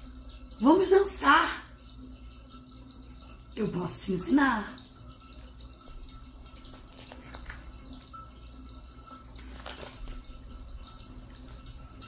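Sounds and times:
book page turning: 6.6 - 8.1, 9.3 - 10.3.

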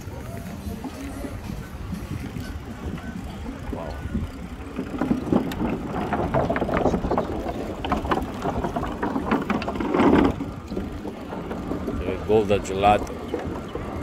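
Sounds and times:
bicycle wheels rattling on boards: 0.0 - 14.0
wind rumble on microphone: 0.0 - 14.0.

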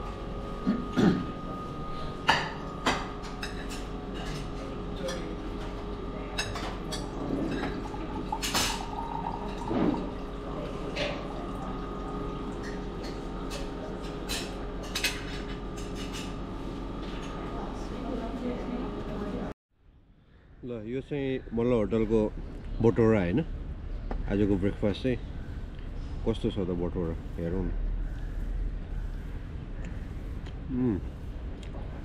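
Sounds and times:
steady hum: 0.0 - 21.2
dishes and cutlery clinking: 2.2 - 5.7, 6.3 - 10.2, 12.5 - 16.4.

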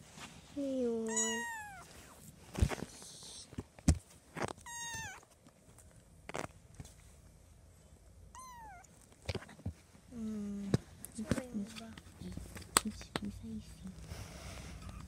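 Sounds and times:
kitten meowing: 1.0 - 1.9, 4.6 - 5.2, 8.3 - 8.9.

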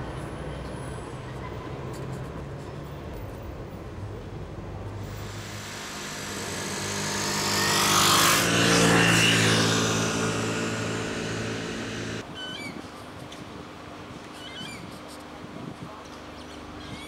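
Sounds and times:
vehicle engine passing by: 5.0 - 12.2.

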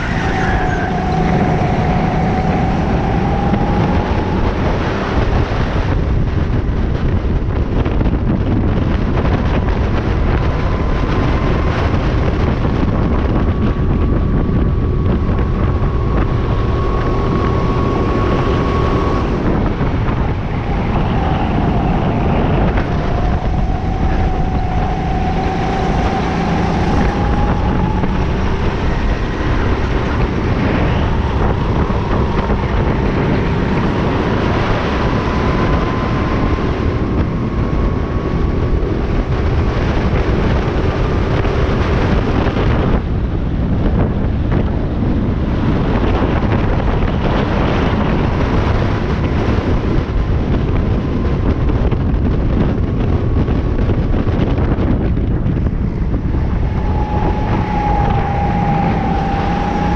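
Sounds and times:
go-kart engine racing: 0.0 - 59.9
wind buffeting microphone: 0.0 - 59.9.

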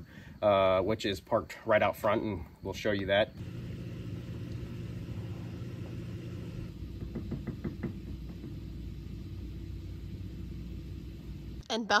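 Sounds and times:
steady low hum: 1.8 - 11.9.

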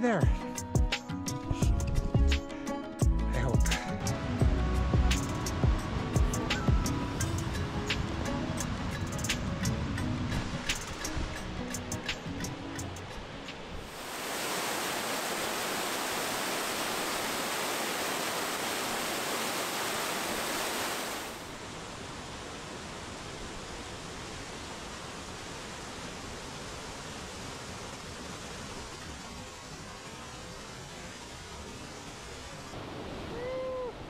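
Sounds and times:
waterfall rushing: 13.7 - 34.0.

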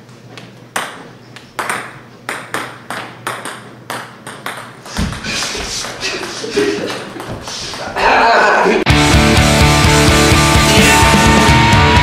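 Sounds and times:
ping pong balls bouncing on wood: 0.4 - 8.2.

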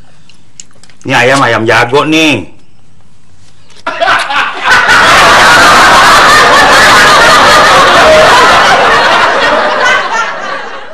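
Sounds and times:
audience laughter: 3.9 - 10.9.

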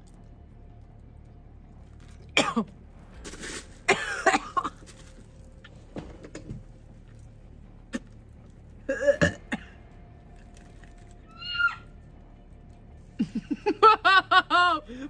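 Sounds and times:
woman gagging and coughing: 2.4 - 2.7, 3.9 - 4.8, 8.9 - 9.7.

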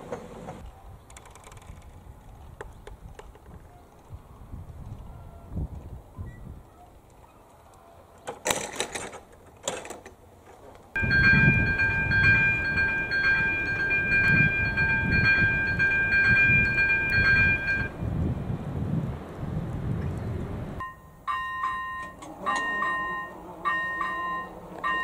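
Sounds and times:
level crossing warning bell: 11.0 - 18.0, 20.8 - 25.0.

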